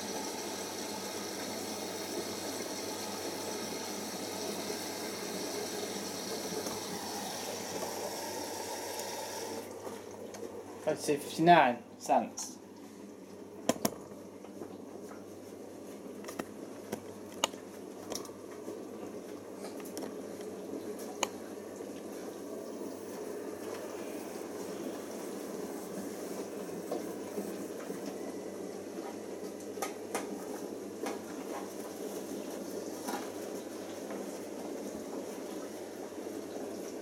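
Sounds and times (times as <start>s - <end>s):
washing machine sloshing: 0.0s - 11.6s, 12.6s - 37.0s.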